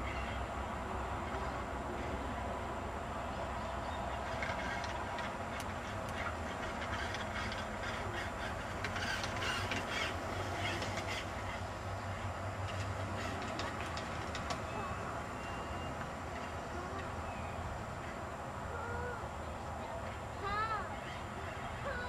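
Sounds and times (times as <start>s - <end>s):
toy golf cart motor hum: 4.1s - 11.6s.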